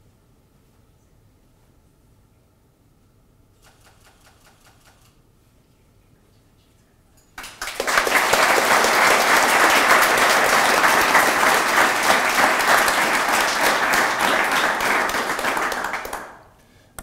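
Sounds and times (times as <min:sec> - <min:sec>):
audience applauding: 0:07.4 - 0:16.5.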